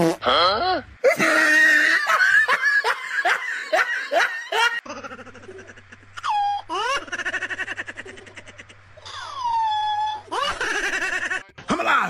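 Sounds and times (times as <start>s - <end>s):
person laughing: 1.1s - 11.4s.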